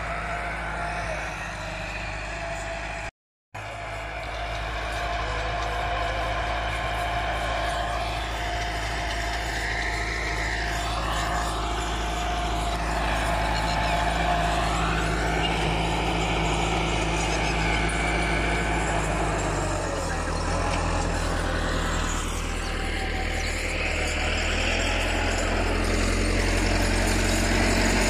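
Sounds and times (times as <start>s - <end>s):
diesel tractor engine under load: 0.0s - 28.0s.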